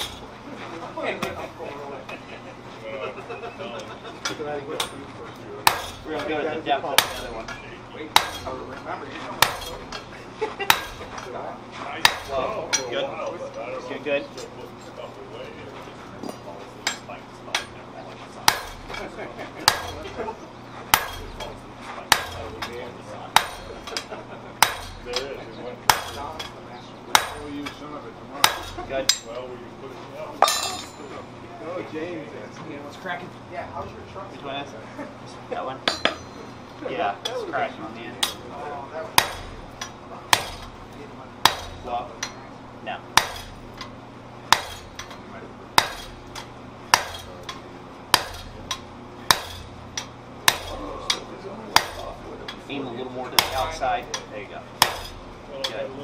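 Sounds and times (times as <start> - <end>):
sledgehammer striking hot steel: 0.0 - 0.3, 4.2 - 6.3, 6.9 - 10.1, 10.7 - 11.3, 12.0 - 13.0, 16.2 - 17.8, 18.4 - 20.1, 20.9 - 27.8, 28.4 - 29.4, 30.4 - 31.2, 35.8 - 36.8, 38.2 - 38.5, 39.1 - 42.5, 43.1 - 52.6, 53.3 - 55.8.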